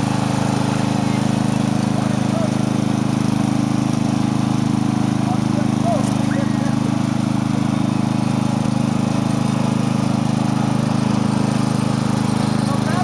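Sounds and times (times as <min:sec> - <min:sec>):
riding lawn mower engine: 0:00.0 - 0:13.0.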